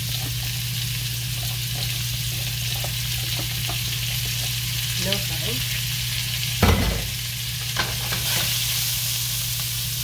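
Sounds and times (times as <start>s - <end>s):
spatula stirring in a pan: 0.0s - 5.3s
beef sizzling in a frying pan: 0.0s - 10.0s.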